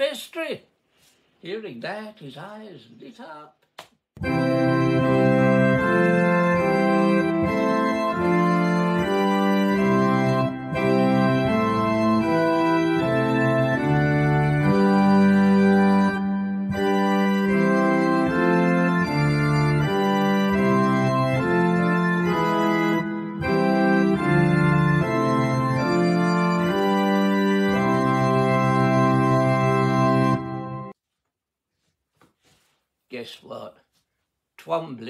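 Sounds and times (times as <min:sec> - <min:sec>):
organ playing hymn chords: 0:04.2 - 0:31.0.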